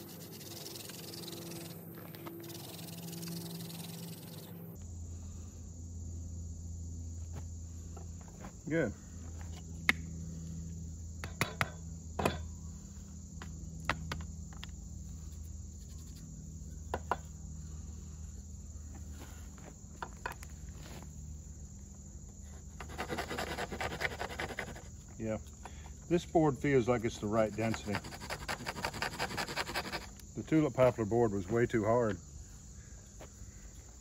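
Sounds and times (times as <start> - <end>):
knife scraping wood: 0.0 - 4.5, 22.6 - 25.0, 27.3 - 30.2
insect drone: 0.0 - 34.0.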